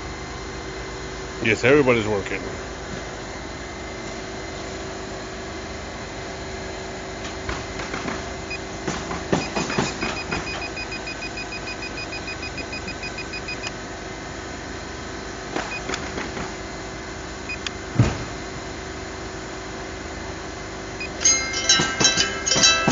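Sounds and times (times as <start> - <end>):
rapid evenly spaced beeps: 9.4 - 13.7
loud thump: 17.9 - 18.4.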